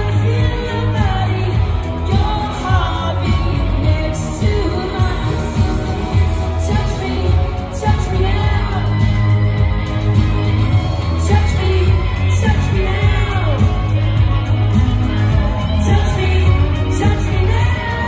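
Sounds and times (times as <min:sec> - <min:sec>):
live pop music with heavy bass: 0:00.0 - 0:18.0
woman singing: 0:00.0 - 0:18.0.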